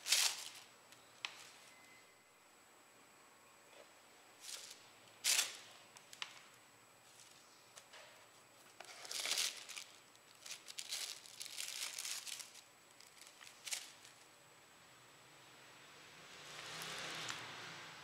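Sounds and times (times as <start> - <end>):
paper napkins rustling: 0.0 - 0.7, 8.6 - 14.2.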